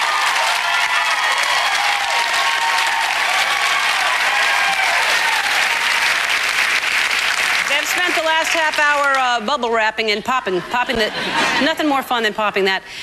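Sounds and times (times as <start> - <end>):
voices cheering: 0.0 - 6.5
audience applauding: 0.0 - 9.4.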